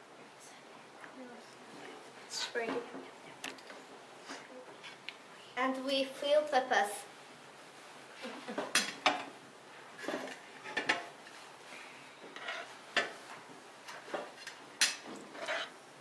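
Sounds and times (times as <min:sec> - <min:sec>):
metal spoons scraping pot: 0:12.4 - 0:13.1, 0:15.3 - 0:15.8.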